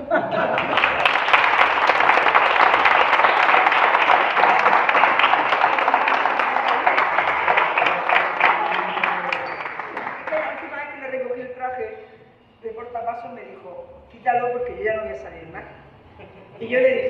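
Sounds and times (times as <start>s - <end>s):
audience applauding: 0.4s - 11.0s.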